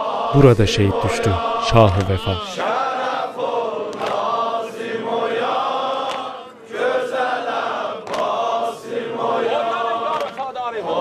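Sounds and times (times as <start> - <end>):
person chanting a lament: 0.0 - 3.1.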